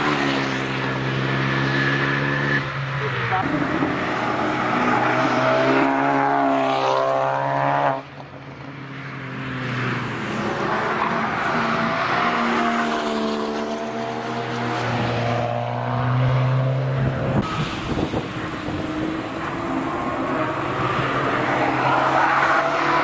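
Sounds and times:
car engines passing: 0.0s - 23.0s.

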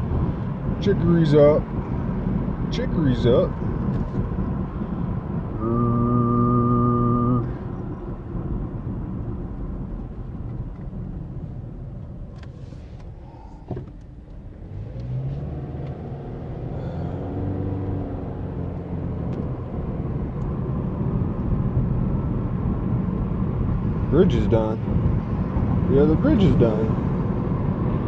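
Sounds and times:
car road and engine noise: 0.0s - 28.0s
loud steady low tone: 5.5s - 7.7s.

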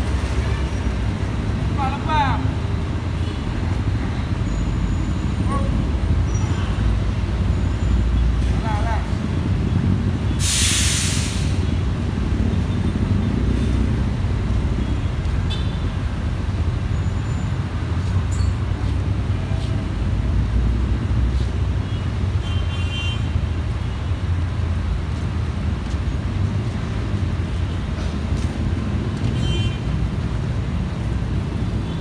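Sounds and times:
air brake hiss: 10.4s - 11.7s.

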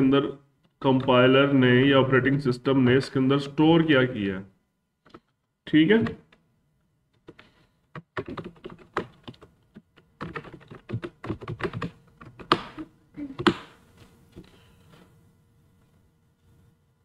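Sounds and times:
typing on computer keyboard: 7.2s - 12.8s.

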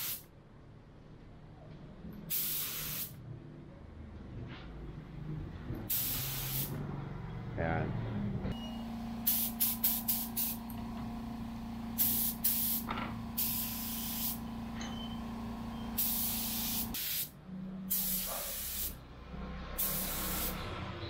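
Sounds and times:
spray gun hissing: 0.0s - 0.2s, 2.3s - 3.1s, 5.9s - 6.7s, 9.0s - 14.5s, 15.4s - 17.3s, 17.9s - 19.0s, 19.8s - 20.7s
low machine hum: 8.1s - 9.3s.

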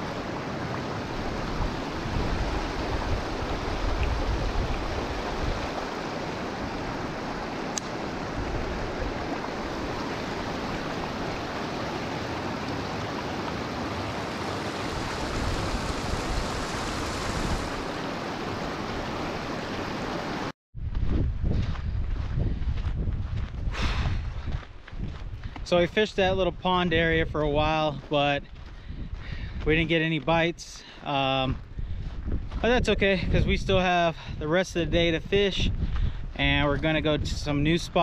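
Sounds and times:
water rushing through spillway: 0.0s - 20.5s.

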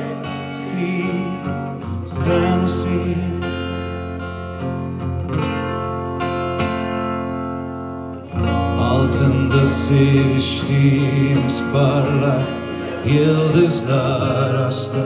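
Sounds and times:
man singing: 0.0s - 4.2s, 8.4s - 15.0s
acoustic guitar strumming: 0.0s - 15.0s.

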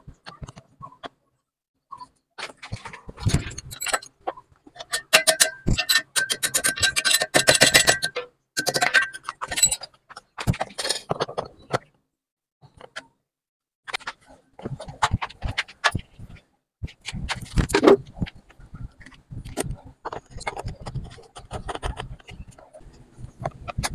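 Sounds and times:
metal tools clinking and rattling: 2.8s - 11.5s.

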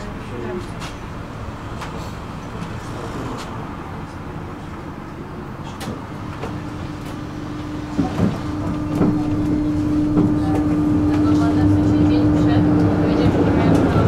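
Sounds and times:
tram rumbling: 0.0s - 14.0s
even hum: 6.0s - 14.0s.

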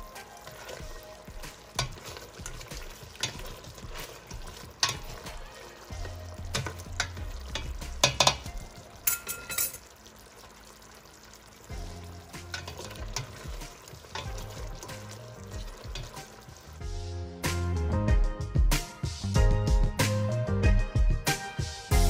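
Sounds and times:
soft background music: 0.0s - 22.0s
stew simmering and sizzling: 0.0s - 22.0s
ladle clinking against pot: 1.8s - 5.4s, 6.5s - 9.9s.

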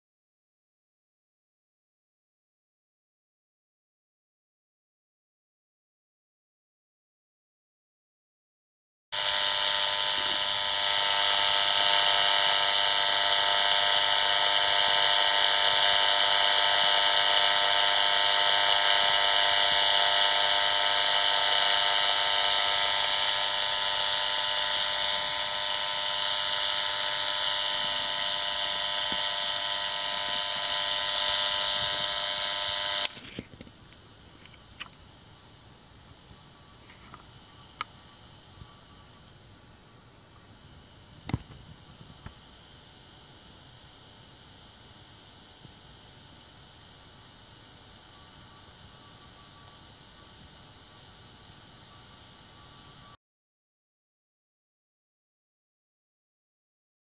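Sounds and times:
meter speaker buzzing hiss: 9.2s - 53.2s.

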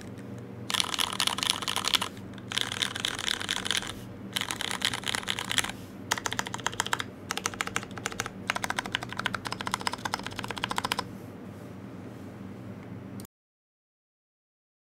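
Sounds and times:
mechanical keyboard typing: 0.7s - 11.1s.

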